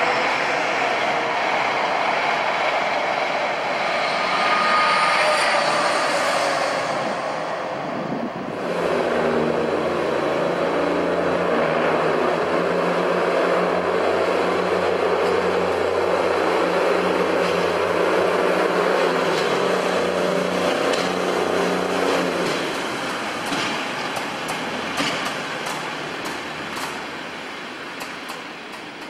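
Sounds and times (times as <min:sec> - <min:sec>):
diesel railbus engines running: 0:00.0 - 0:29.0
wheels clicking over rail joints: 0:19.3 - 0:29.0.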